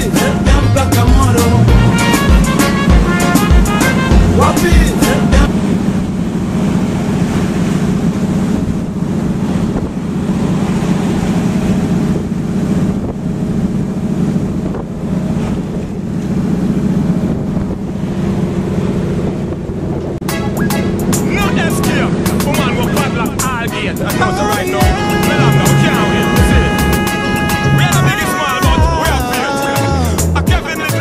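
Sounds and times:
water rushing past hull: 0.0 - 29.5
boat engine running: 0.0 - 31.0
wind buffeting microphone: 5.5 - 20.3.

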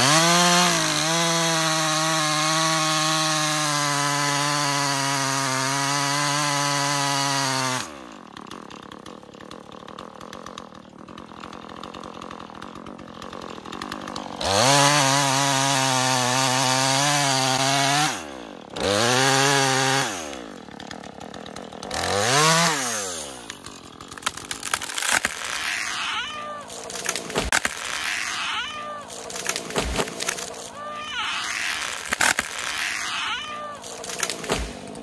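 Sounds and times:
chainsaw cutting wood: 0.0 - 35.0
wood cracking and snapping: 20.2 - 35.0.

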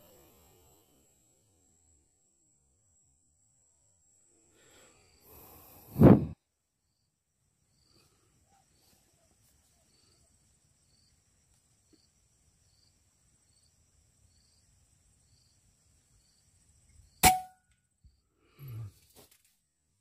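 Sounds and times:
faint high whine: 0.0 - 9.9
faint chirps: 0.0 - 17.2
air rifle shot: 17.2 - 17.5.

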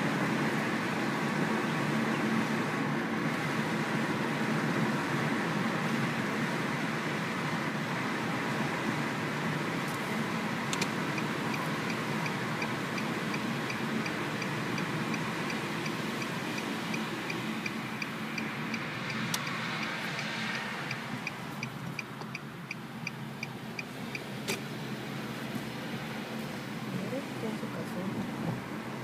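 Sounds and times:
road and engine noise: 0.0 - 29.0
turn signal clicking: 10.7 - 24.7.

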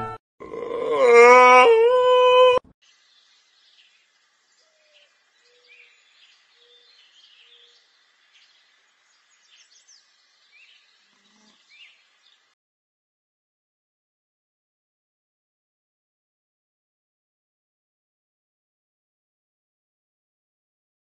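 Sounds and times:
quiet outdoor background noise: 0.4 - 12.6
birds chirping and trilling: 2.4 - 12.6.

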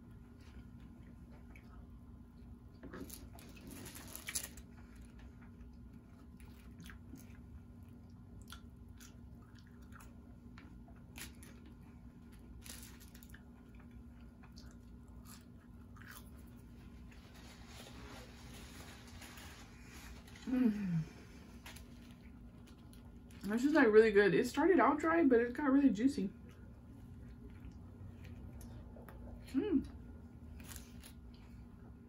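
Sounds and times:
person chewing fries: 0.1 - 17.3, 26.4 - 32.0.

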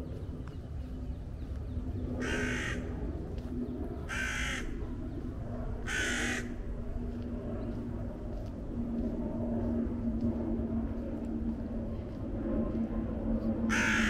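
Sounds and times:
low background rumble: 0.0 - 14.0
crow cawing: 2.2 - 2.9, 4.1 - 4.8, 5.8 - 6.6, 13.7 - 14.0.

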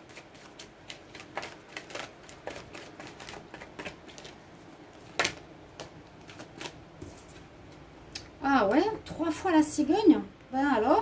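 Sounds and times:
cards being shuffled: 0.0 - 7.5.

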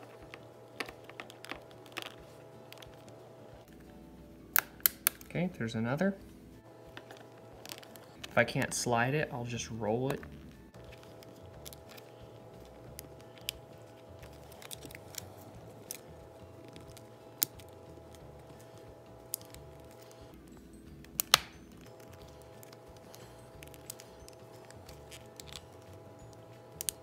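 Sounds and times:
faint steady hum: 0.0 - 27.0
plastic clicks and snaps: 4.5 - 5.4, 10.1 - 20.3, 21.0 - 27.0.

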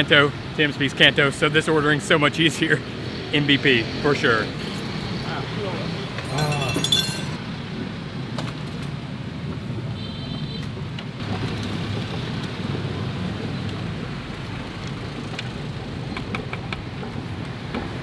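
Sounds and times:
street traffic: 0.0 - 18.0
metal strainer clinking: 6.3 - 7.4
pot of water boiling: 10.8 - 18.0.

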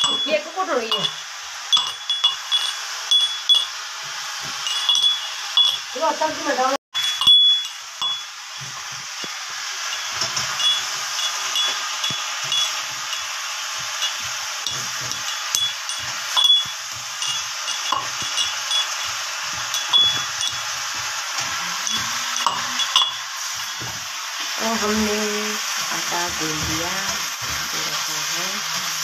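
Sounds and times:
vegetables sizzling in a wok: 0.0 - 29.0
spoon knocking against pan: 7.2 - 24.0.

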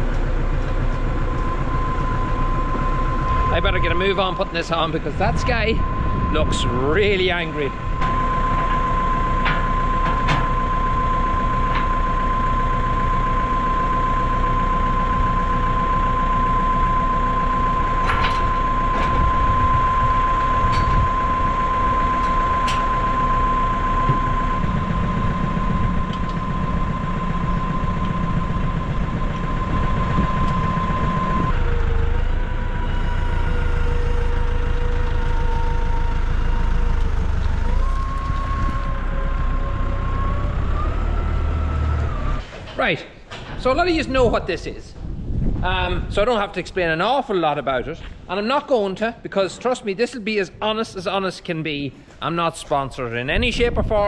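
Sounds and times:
tractor engine idling with whine: 0.0 - 49.8, 50.5 - 54.0.

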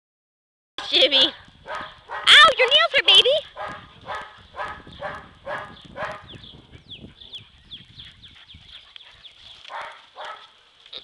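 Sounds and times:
dog barking: 1.6 - 2.4, 3.5 - 6.4, 9.7 - 10.6.

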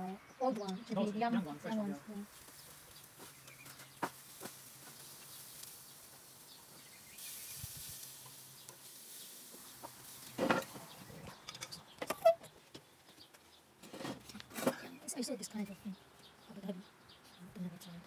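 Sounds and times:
faint hiss: 2.1 - 11.5.

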